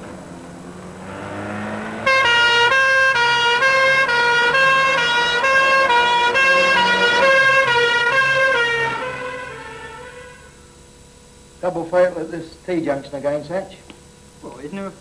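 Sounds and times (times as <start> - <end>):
passing traffic: 0.0 - 10.6
two-tone emergency vehicle horn: 1.0 - 10.6.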